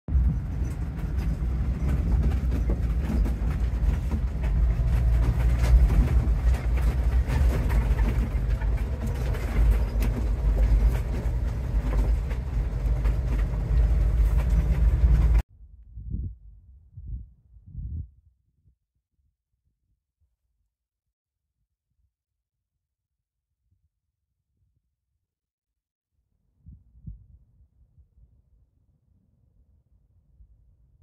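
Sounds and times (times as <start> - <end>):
small rattles and knocks: 0.1 - 15.4
engine and tyres rumbling: 0.1 - 15.5
faint low thumps: 15.9 - 18.2.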